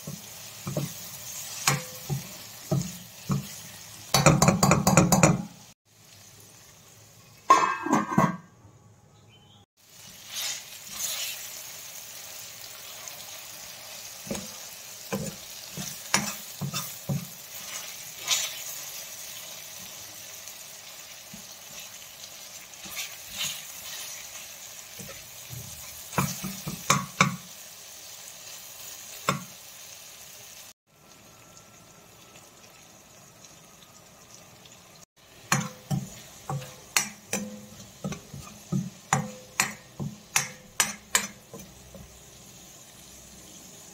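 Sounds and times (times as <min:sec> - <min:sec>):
masala sizzling in a wok: 0:00.0 - 0:08.1, 0:09.7 - 0:43.9
spoon knocking against pan: 0:04.1 - 0:05.6, 0:26.2 - 0:27.4, 0:35.5 - 0:42.1.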